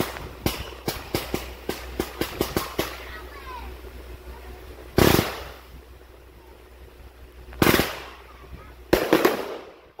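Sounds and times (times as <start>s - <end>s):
fireworks bangs with echo: 0.0s - 3.4s, 5.0s - 5.7s, 7.6s - 10.0s.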